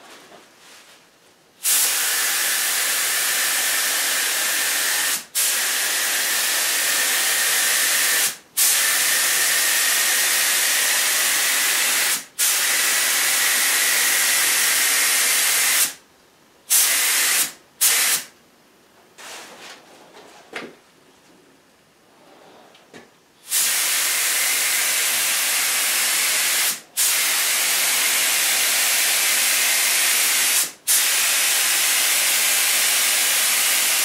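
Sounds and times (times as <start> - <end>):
faint handling sounds: 0.0 - 1.5
spray gun hissing: 1.6 - 16.0, 16.7 - 18.3, 23.4 - 34.0.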